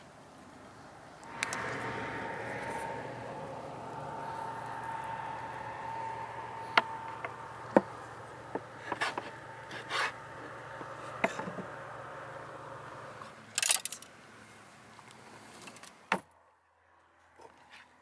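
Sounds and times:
faint hum: 0.0s - 15.4s
skewers rattling on metal rack: 13.5s - 14.1s.

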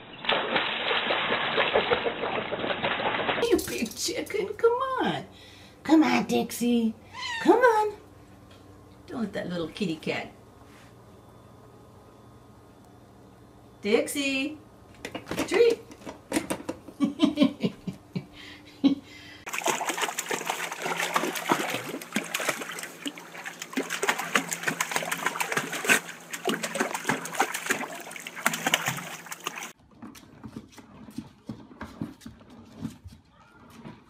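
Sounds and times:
bathwater splashing and sloshing: 0.0s - 4.0s, 19.5s - 32.9s.

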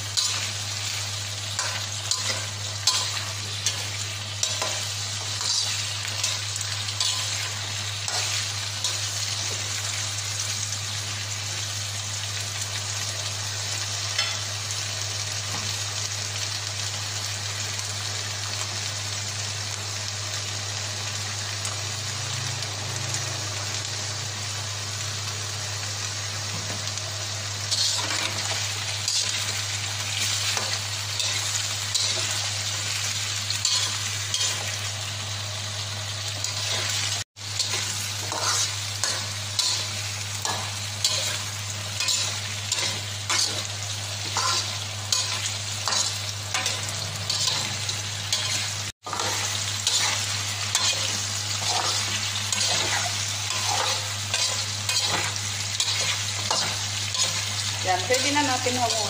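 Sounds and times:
vegetables sizzling in hot oil: 0.0s - 59.0s
metal spatula scraping wok: 37.6s - 59.0s.

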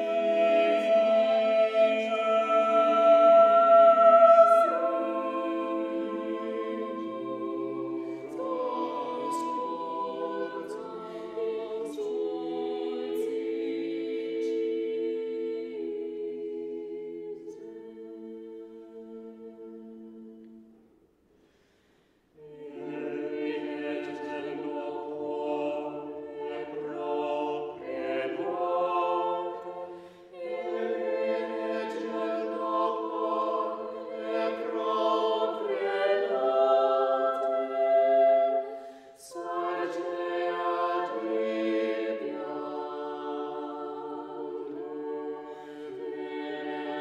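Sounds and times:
choir singing a cappella: 0.0s - 21.0s, 22.2s - 47.0s.

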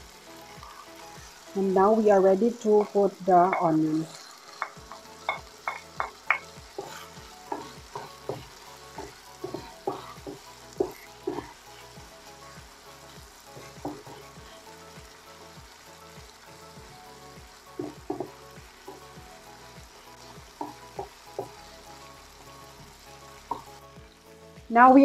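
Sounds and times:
faint frying sizzle: 0.0s - 25.0s
spoon knocking against pan: 2.8s - 3.8s, 4.6s - 11.5s, 13.6s - 14.2s, 17.8s - 19.1s, 20.6s - 21.6s, 23.5s - 23.7s.

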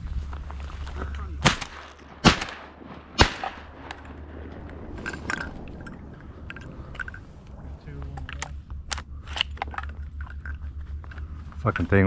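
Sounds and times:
shotgun shots: 1.4s - 4.5s.

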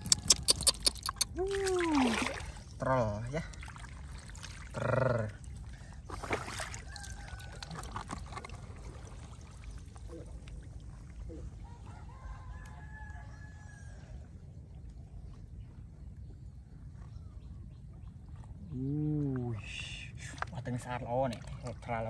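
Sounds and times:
water splashing and sloshing: 0.0s - 22.0s
rooster crowing: 6.8s - 8.0s, 11.6s - 14.2s.

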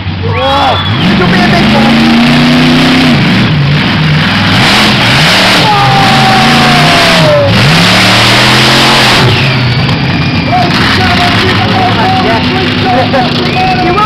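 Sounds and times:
truck engine revving: 0.0s - 14.0s
high tone sliding downward: 5.2s - 14.0s.

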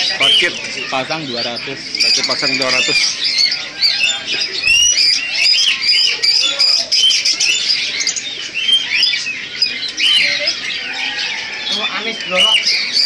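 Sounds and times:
budgerigars chattering: 0.0s - 13.0s.

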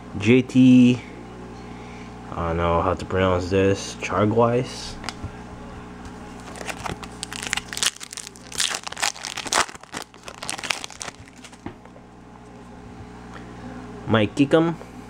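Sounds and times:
foil wrapper crinkling and tearing: 6.4s - 11.7s.

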